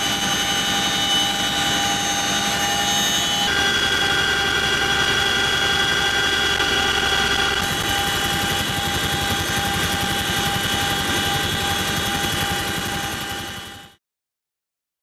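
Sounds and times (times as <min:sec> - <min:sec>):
helicopter rotor beat: 0:00.0 - 0:14.0
turbine engines whining: 0:00.0 - 0:14.0.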